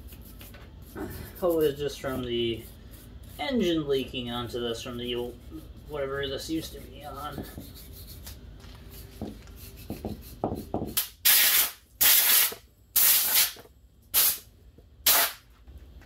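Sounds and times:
faint rubbing strokes: 0:00.0 - 0:10.7.

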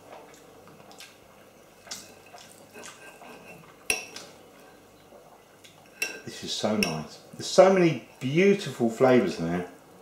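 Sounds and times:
knife and fork scraping plate: 0:02.7 - 0:04.2.

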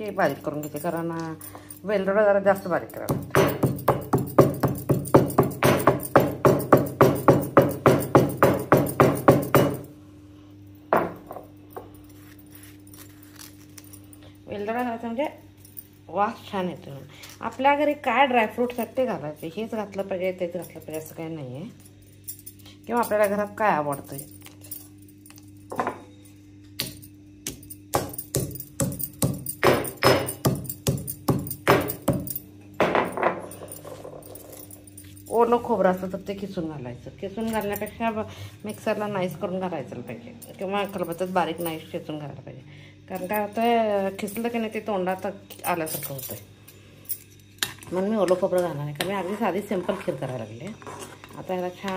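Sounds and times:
stone pestle pounding in mortar: 0:03.1 - 0:09.8, 0:26.8 - 0:32.3.

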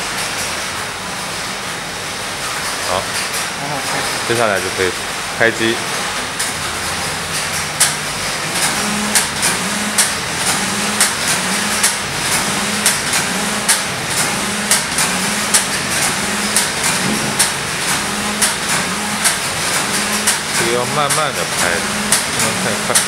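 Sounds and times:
knitting machine motor hum: 0:03.4 - 0:23.0
sharp machine clicks: 0:06.0 - 0:23.0.

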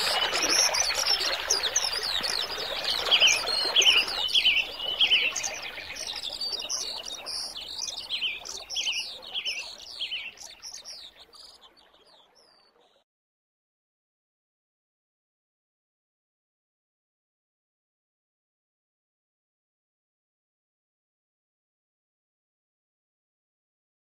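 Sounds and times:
birds chirping and twittering: 0:00.0 - 0:13.0.

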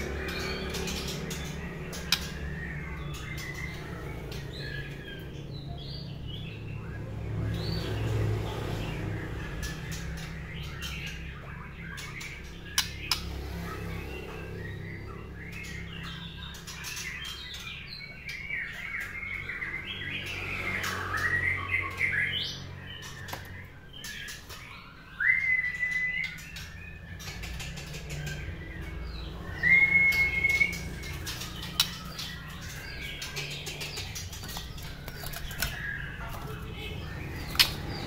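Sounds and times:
bird clicks and flutters in cage: 0:00.0 - 0:02.6, 0:12.0 - 0:14.6, 0:30.1 - 0:38.0
bird singing warbled phrases: 0:00.0 - 0:38.0
loud whistled bird notes: 0:24.7 - 0:27.0, 0:29.2 - 0:33.1.

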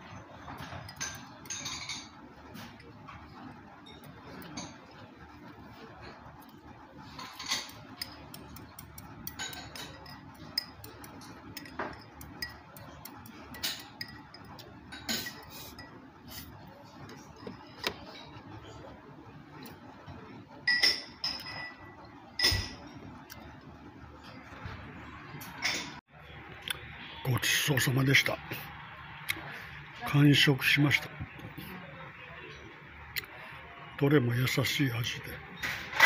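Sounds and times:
crockery clinking: 0:00.4 - 0:02.8, 0:07.1 - 0:16.0, 0:20.6 - 0:23.0
dishes and chopsticks clicking: 0:07.6 - 0:14.7.

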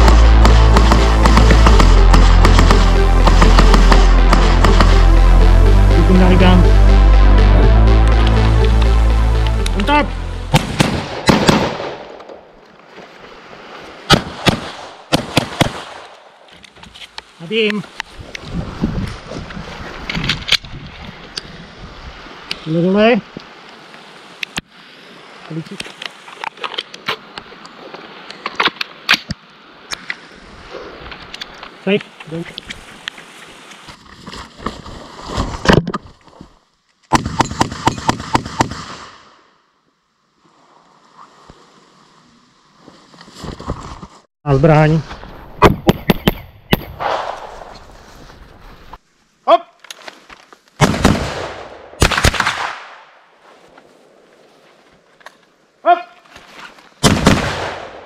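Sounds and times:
pistol shots in rapid string: 0:00.0 - 0:02.7
pistol shots: 0:10.5 - 0:12.2, 0:14.1 - 0:16.0
gunshot echo: 0:10.5 - 0:12.4, 0:45.6 - 0:47.8.

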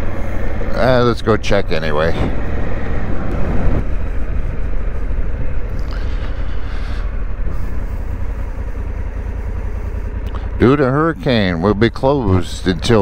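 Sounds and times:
motorcycle engine running: 0:00.0 - 0:13.0
road noise: 0:00.0 - 0:13.0
wind noise: 0:01.9 - 0:08.1.

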